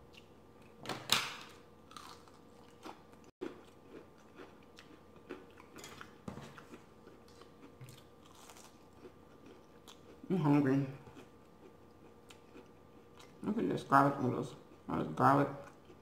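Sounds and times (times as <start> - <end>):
crunchy bite: 1.9 - 3.0
chewing crunches and mouth sounds: 1.9 - 13.4, 15.6 - 16.0.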